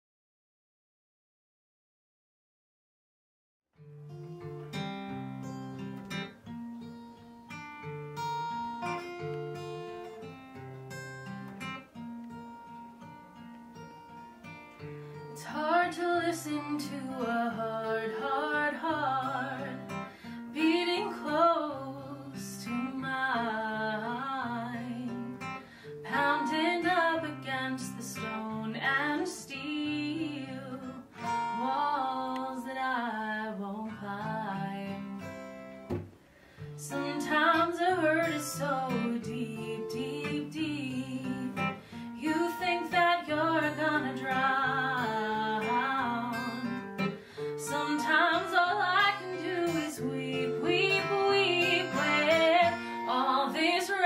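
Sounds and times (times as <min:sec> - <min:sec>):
acoustic guitars: 0:03.8 - 0:54.0
woman singing: 0:15.3 - 0:35.3, 0:36.8 - 0:54.0.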